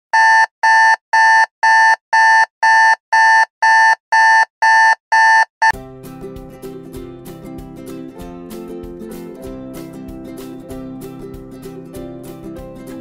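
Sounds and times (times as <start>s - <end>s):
alarm clock beeping: 0.2s - 5.8s
plucked guitar music: 5.8s - 13.0s.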